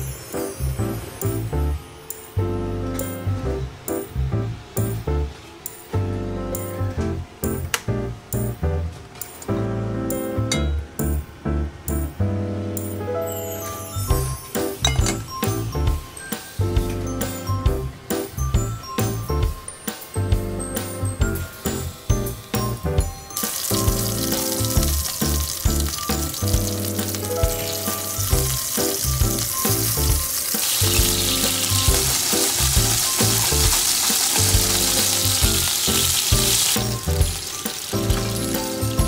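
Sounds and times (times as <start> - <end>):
background music: 0.0 - 39.0
chicken sizzling in frying pan: 23.4 - 39.0.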